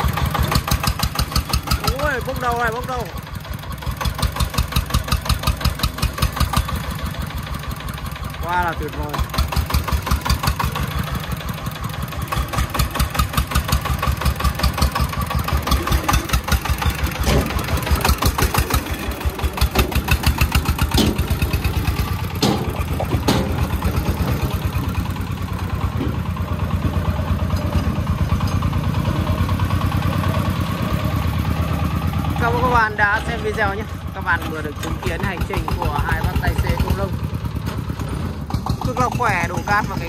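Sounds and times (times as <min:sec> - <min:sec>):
diesel engine chugging: 0:00.0 - 0:40.0
metallic clanks: 0:15.6 - 0:29.4.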